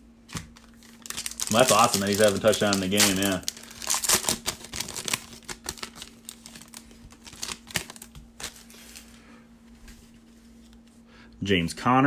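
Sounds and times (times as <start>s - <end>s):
foil wrapper crinkling: 0.3s - 9.2s.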